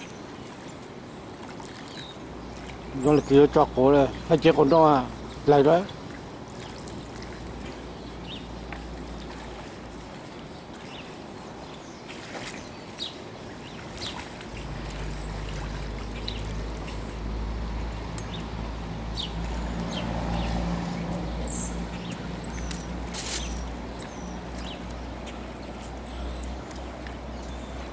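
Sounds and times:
flowing water hiss: 0.0s - 26.2s
low rumble with faint hum: 14.3s - 27.9s
high bird chirps: 21.4s - 24.8s.

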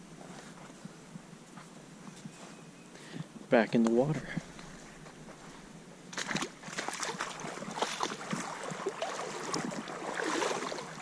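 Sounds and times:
feet splashing through water: 6.1s - 11.0s.

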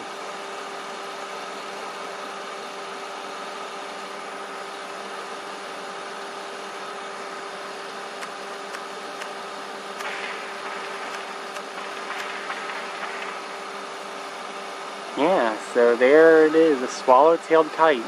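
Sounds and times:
mechanical hum: 0.0s - 18.0s.

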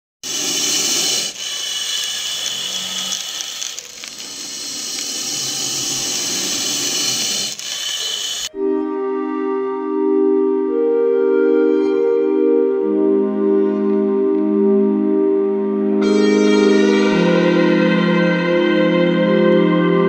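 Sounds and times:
harsh mechanical whirring: 0.2s - 8.5s
music: 8.5s - 20.0s.

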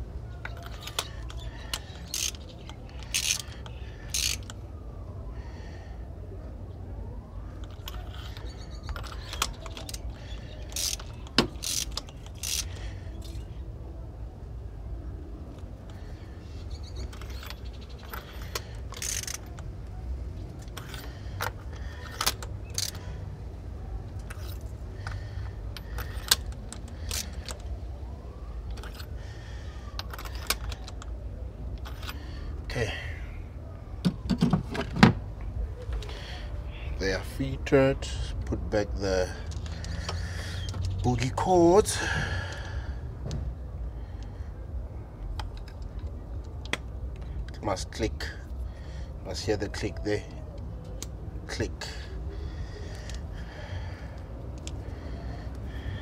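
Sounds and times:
ratchet wrench clicking: 0.6s - 4.6s, 10.7s - 13.4s, 17.2s - 19.6s, 25.8s - 27.5s.

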